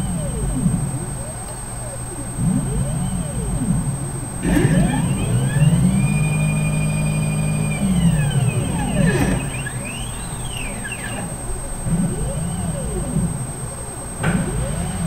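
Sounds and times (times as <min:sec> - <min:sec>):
stepper motors whining: 0:00.0 - 0:15.0
machine click: 0:07.2 - 0:11.4.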